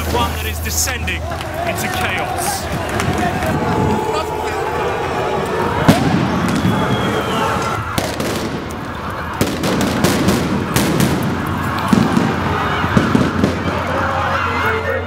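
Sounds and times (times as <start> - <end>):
crowd and street noise: 0.0 - 15.0
sharp bangs and pops: 5.8 - 14.0.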